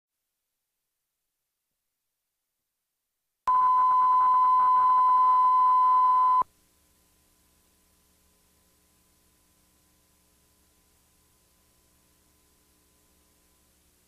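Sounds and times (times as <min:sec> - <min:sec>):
high test tone beep: 0:03.5 - 0:06.4
faint hiss and hum: 0:03.5 - 0:14.0.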